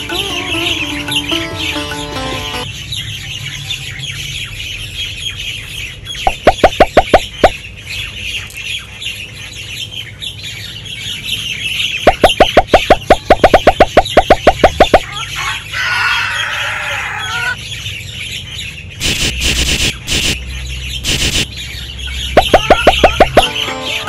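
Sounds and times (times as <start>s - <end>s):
birds chirping: 0.0s - 19.2s, 20.3s - 24.0s
rapid repeated bird calls: 3.0s - 15.7s, 16.4s - 23.7s.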